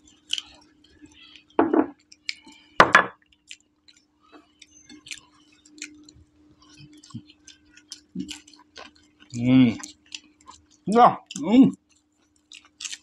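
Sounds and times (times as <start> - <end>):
faint steady hum: 0.0 - 13.0
people chewing: 0.0 - 13.0
plate knocking on table: 1.6 - 1.9, 2.8 - 3.2.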